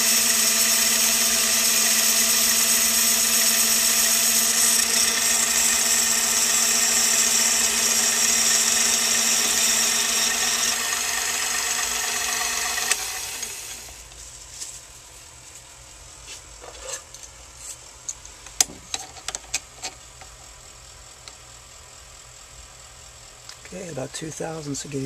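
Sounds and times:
metal lathe running: 0:00.0 - 0:14.0.

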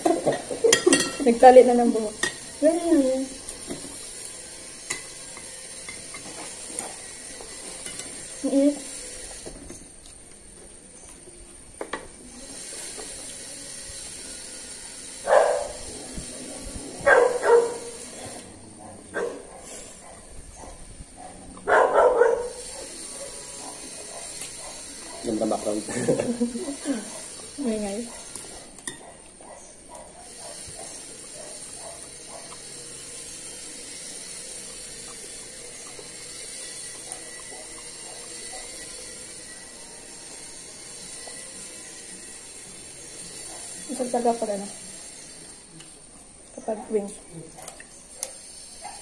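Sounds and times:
background hiss: 0:00.0 - 0:49.0
quiet chewing: 0:22.5 - 0:25.5, 0:26.3 - 0:39.6, 0:47.3 - 0:49.0.

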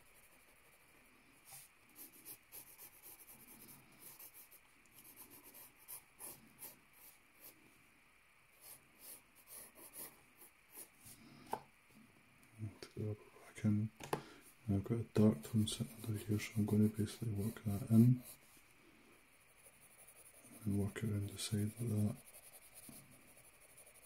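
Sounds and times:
pencil scratching on paper: 0:00.0 - 0:00.9, 0:01.5 - 0:07.6, 0:08.6 - 0:10.9, 0:15.4 - 0:18.4, 0:19.4 - 0:24.0.

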